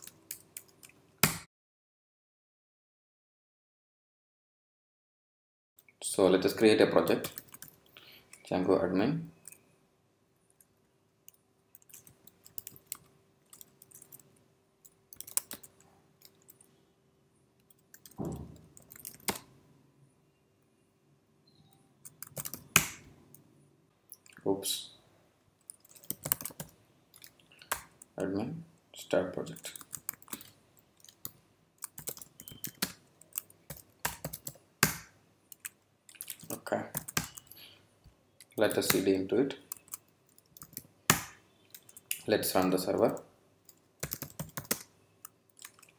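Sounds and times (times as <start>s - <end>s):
computer keyboard keystrokes clicking: 11.8s - 14.2s, 14.8s - 16.6s, 17.7s - 19.5s, 22.0s - 23.0s, 25.7s - 28.0s, 29.6s - 37.6s, 44.0s - 45.9s.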